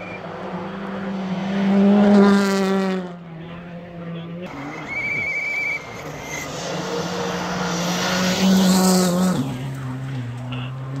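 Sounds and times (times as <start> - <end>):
rally car engine passing: 0.0 - 11.0.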